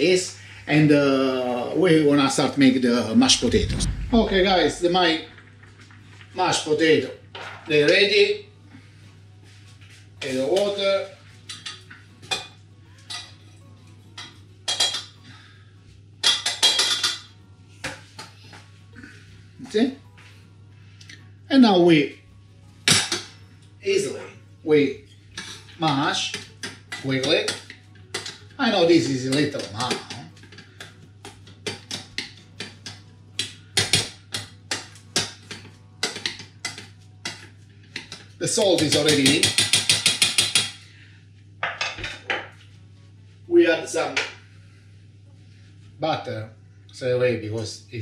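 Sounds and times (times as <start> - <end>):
metal utensil clacking on saucepan: 38.8 - 40.8.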